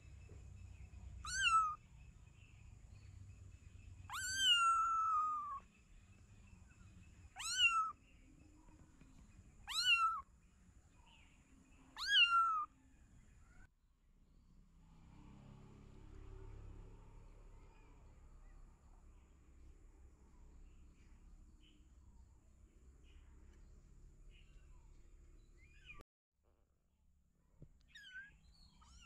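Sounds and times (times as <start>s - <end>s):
kitten meowing: 1.2s - 1.8s, 4.1s - 5.6s, 7.4s - 8.0s, 9.7s - 10.2s, 12.0s - 12.7s, 27.9s - 29.0s.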